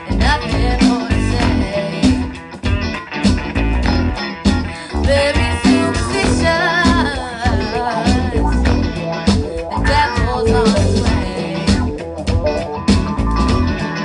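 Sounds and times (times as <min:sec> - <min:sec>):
woman singing: 0:00.0 - 0:02.4, 0:04.8 - 0:08.8, 0:09.7 - 0:12.0
drum kit beat: 0:00.0 - 0:14.0
electric guitars: 0:00.0 - 0:14.0.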